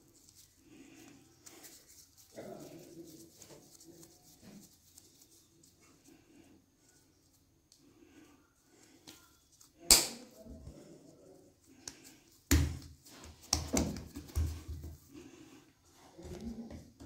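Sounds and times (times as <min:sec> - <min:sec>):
soft thumps and pats of dough: 0:11.8 - 0:15.1.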